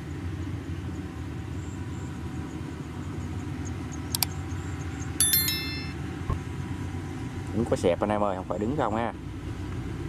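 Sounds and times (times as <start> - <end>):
bright ringing chime: 5.2 - 6.0.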